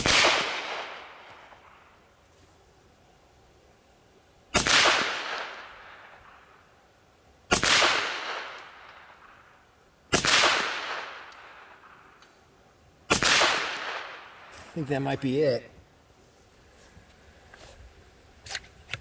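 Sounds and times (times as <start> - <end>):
air pistol shots: 0.0 - 1.8, 4.6 - 6.4, 7.5 - 9.4, 10.1 - 12.1, 13.1 - 14.5.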